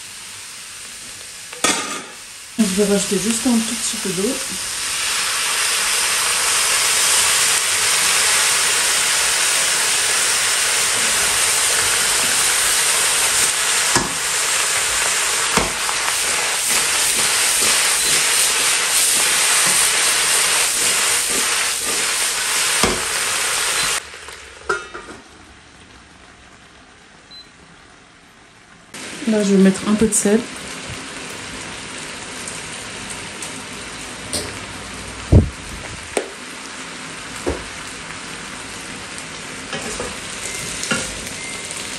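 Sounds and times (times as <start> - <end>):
vegetables sizzling in a wok: 0.0 - 41.9
wok knocking as tossed: 15.5 - 15.9, 22.8 - 23.2.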